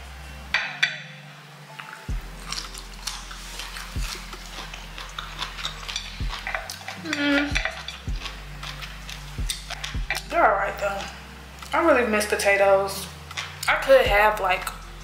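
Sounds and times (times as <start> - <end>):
crunchy chewing: 2.1 - 10.3.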